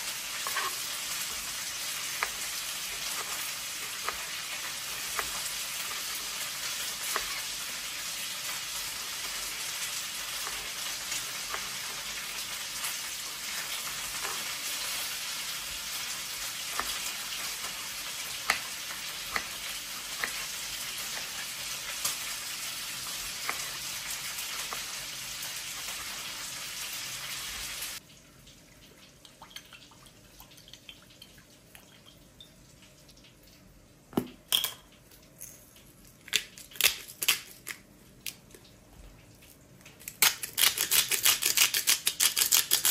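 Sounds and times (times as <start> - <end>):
food sizzling in pan: 0.0 - 28.0.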